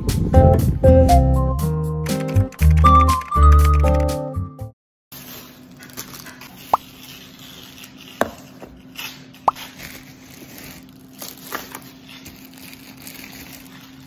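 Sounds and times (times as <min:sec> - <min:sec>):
plastic bags rustling: 0:05.2 - 0:14.0.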